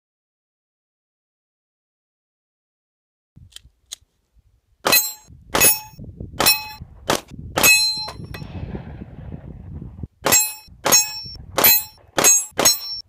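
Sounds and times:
bullets hitting steel target: 0:04.9 - 0:08.5, 0:10.2 - 0:13.0.

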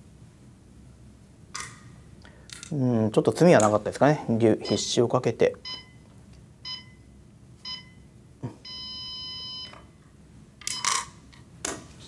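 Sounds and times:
game clock beeps: 0:08.6 - 0:09.8.

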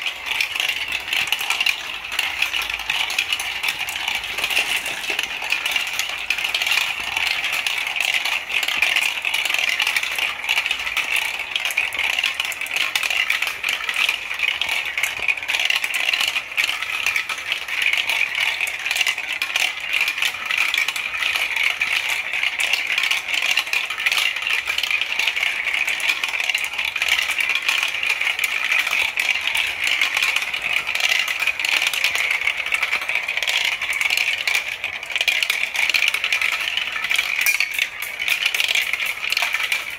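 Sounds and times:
marbles rattling through plastic chutes: 0:00.0 - 0:39.9.

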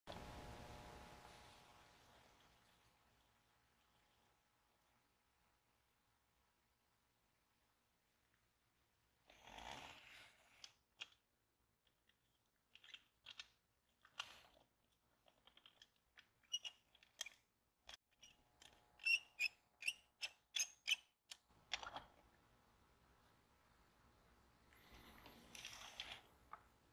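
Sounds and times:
rubbing and scraping on metal toy: 0:12.1 - 0:21.2
short high squeaks: 0:19.0 - 0:21.1.

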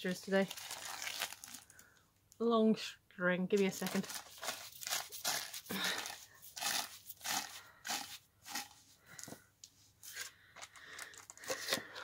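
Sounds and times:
plastic wrap crinkling: 0:00.0 - 0:02.0, 0:03.6 - 0:09.4, 0:10.1 - 0:12.0.

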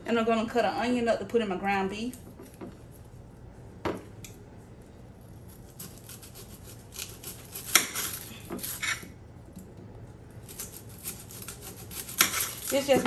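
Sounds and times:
knife scraping on glass plate: 0:05.8 - 0:09.1.

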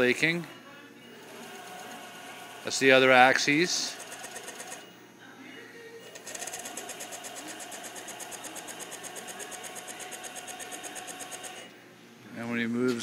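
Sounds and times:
mill axis drive pulsing: 0:06.1 - 0:11.7.

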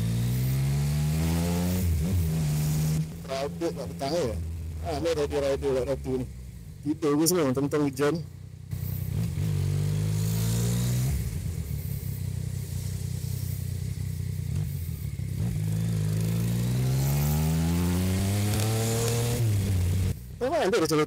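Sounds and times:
motorcycle engine pulling away: 0:00.0 - 0:04.8, 0:08.3 - 0:20.2.

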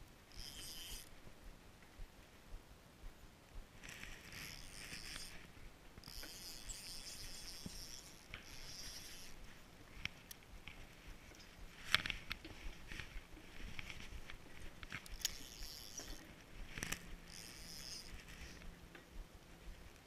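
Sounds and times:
fishing reel whirring: 0:00.3 - 0:01.2, 0:03.8 - 0:10.1, 0:12.8 - 0:18.7.

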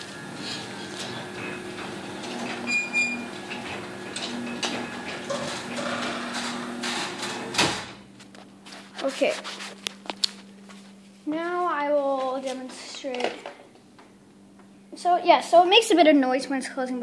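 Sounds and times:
garage door opener motor hum: 0:00.0 - 0:08.2
garage door thump closing: 0:00.2 - 0:08.0.

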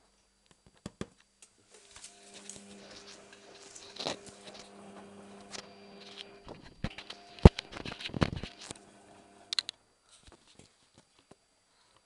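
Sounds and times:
washing machine motor hum: 0:01.6 - 0:09.7.

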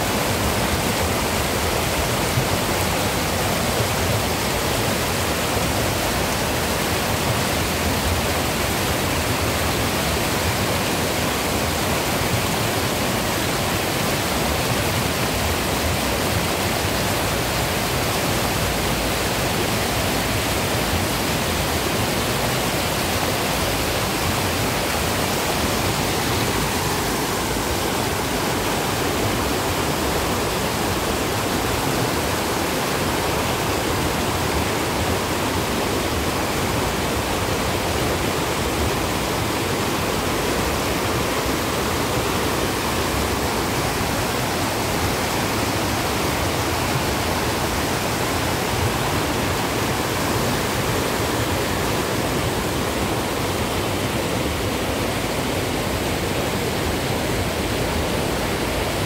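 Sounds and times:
water rushing over weir: 0:00.0 - 0:59.0.

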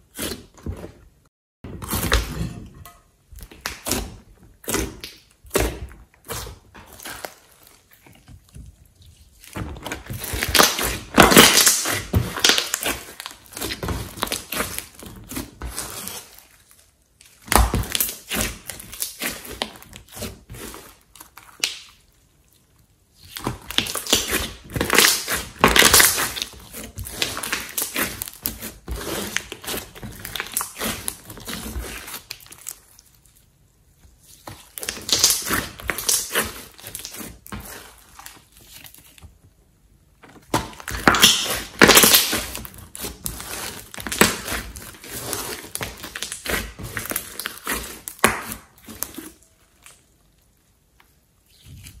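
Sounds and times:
slime squishing and popping: 0:09.3 - 0:16.6, 0:23.2 - 0:33.1, 0:34.3 - 0:39.2, 0:40.4 - 0:50.1.

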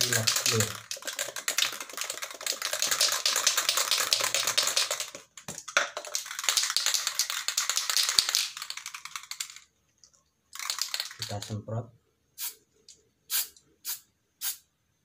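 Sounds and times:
aerosol can rattling: 0:00.0 - 0:09.7, 0:10.5 - 0:11.5.

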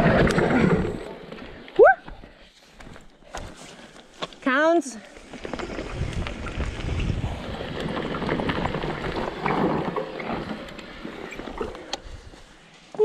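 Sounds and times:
bike tyres on dirt: 0:00.0 - 0:13.0
bike rattling and knocking: 0:05.2 - 0:11.9
wind buffeting microphone: 0:05.6 - 0:09.3.

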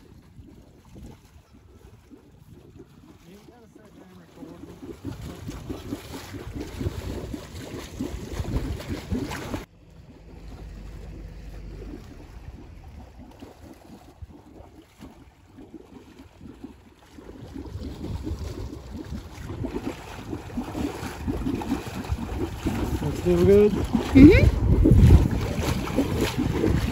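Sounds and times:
wind buffeting microphone: 0:00.0 - 0:09.7, 0:10.5 - 0:26.9
water rushing through waterwheel: 0:00.0 - 0:26.9.

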